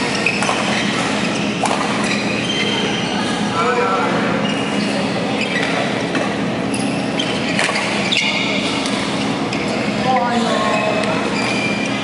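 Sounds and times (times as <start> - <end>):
rackets striking shuttlecock: 0.0 - 2.3, 7.3 - 9.2
shoes squeaking on court floor: 0.0 - 3.5, 4.4 - 12.0
sports hall hum: 0.0 - 12.0.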